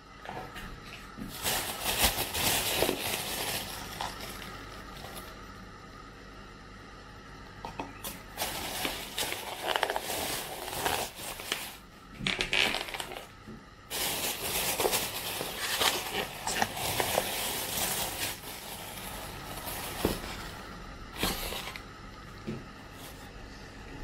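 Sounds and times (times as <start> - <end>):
plastic bag rustling: 1.1 - 5.4, 8.0 - 21.8.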